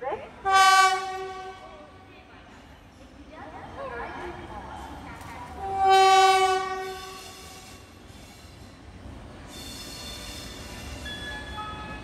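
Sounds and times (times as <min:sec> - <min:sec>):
train horn blast: 0:00.4 - 0:01.7, 0:05.6 - 0:07.6.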